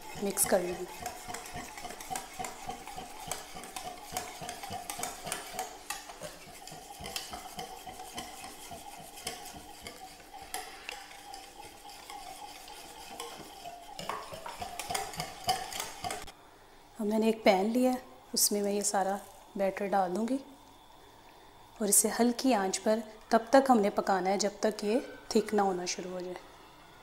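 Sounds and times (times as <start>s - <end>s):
whisk clicking on glass bowl: 0.0s - 16.3s.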